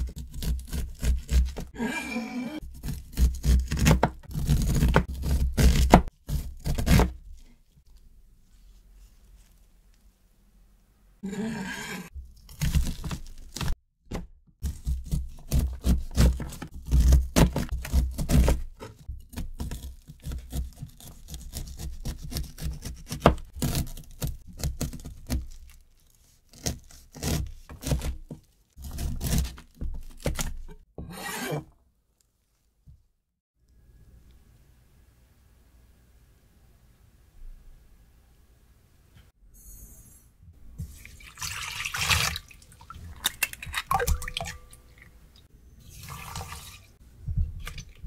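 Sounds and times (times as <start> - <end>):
knife scraping corn cob: 0.0 - 7.5, 14.6 - 31.7.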